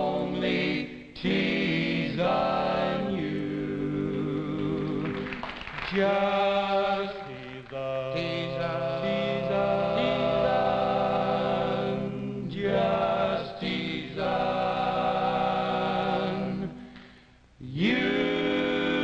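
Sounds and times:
men singing barbershop harmony: 0.0 - 5.2, 5.9 - 16.9, 17.6 - 19.0.

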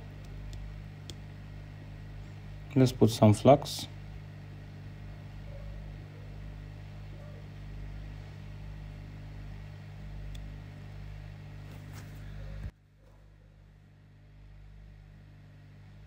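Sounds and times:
electrical hum: 0.0 - 16.0.

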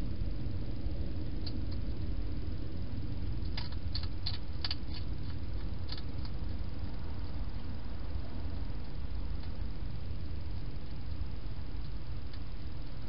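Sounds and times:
low rumble and hiss: 0.0 - 13.0
hedgehog crunching food: 3.3 - 7.5.

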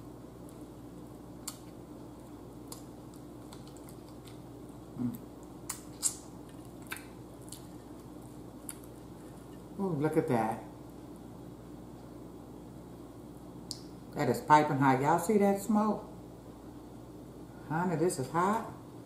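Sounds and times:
faint room hum: 0.0 - 19.0
person chewing: 1.3 - 9.8.

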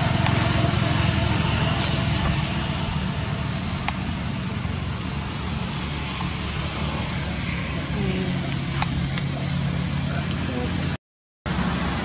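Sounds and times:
low rumbling background noise: 0.0 - 12.0.

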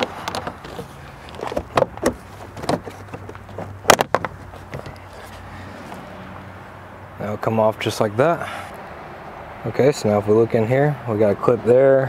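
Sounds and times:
plastic trim panel being pried: 0.0 - 5.0.

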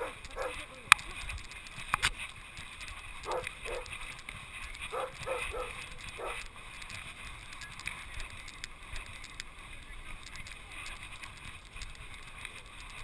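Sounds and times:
dog barking: 0.0 - 0.7, 3.2 - 3.9, 4.9 - 6.4.

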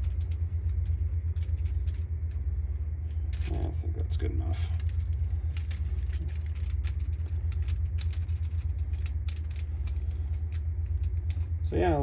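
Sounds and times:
low machine hum: 0.0 - 12.0
pastry brush clicking and crinkling: 4.6 - 11.6.

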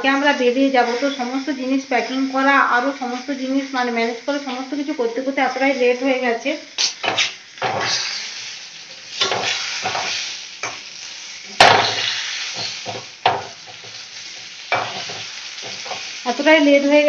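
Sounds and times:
fish frying in hot oil: 0.0 - 17.0
utensil scraping pan: 9.1 - 10.8
utensil knocking on pan: 11.6 - 13.8.

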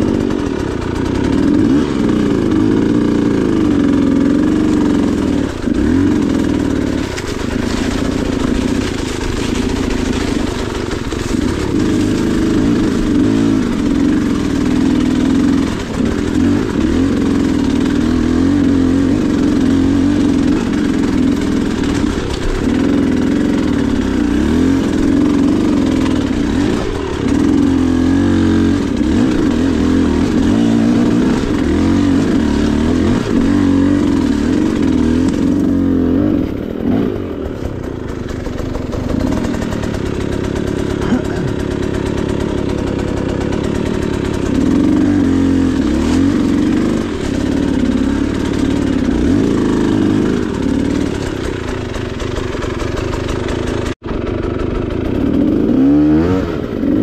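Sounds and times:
dirt bike engine rising and falling: 0.0 - 57.0.

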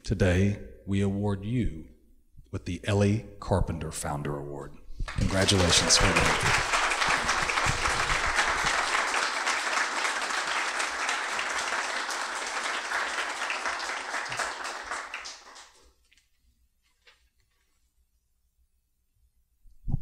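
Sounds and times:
audience applauding: 5.1 - 15.9.

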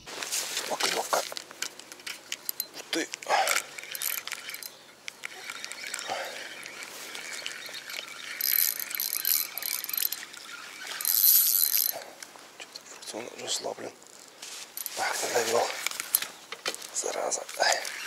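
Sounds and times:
rod handling rustles: 0.1 - 18.0
fishing reel cranking: 0.8 - 12.1, 17.0 - 18.0.

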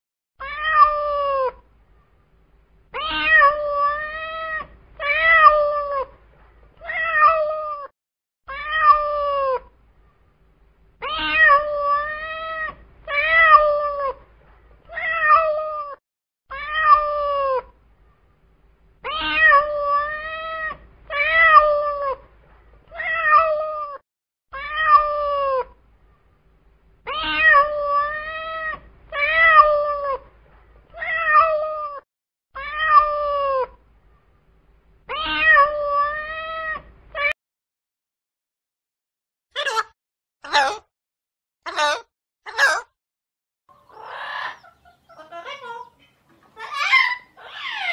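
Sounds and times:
cat meowing: 0.4 - 1.6, 3.0 - 6.1, 6.8 - 7.9, 8.5 - 9.6, 11.0 - 14.2, 14.9 - 17.6, 19.0 - 22.2, 22.9 - 24.0, 24.6 - 25.7, 27.1 - 30.3, 30.9 - 32.0, 32.6 - 33.8, 35.1 - 37.4, 46.6 - 47.9.

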